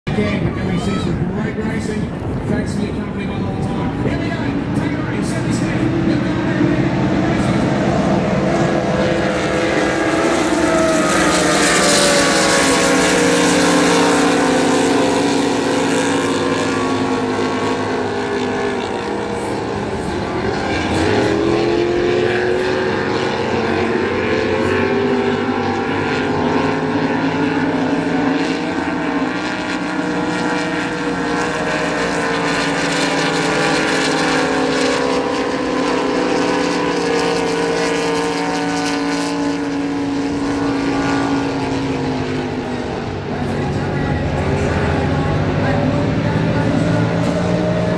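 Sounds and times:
race boat engines droning: 0:00.1 - 0:47.9.

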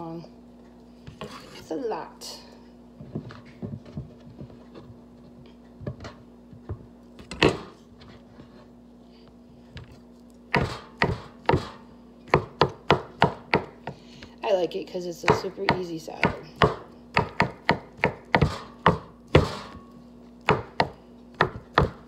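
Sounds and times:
faint steady hum: 0:00.0 - 0:22.0
knocks and scrapes on board: 0:01.1 - 0:01.7
knife chopping on cutting board: 0:10.5 - 0:14.0, 0:15.2 - 0:22.0.

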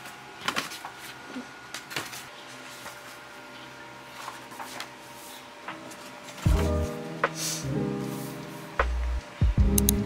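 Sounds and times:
paper pages rustling: 0:01.8 - 0:06.5.

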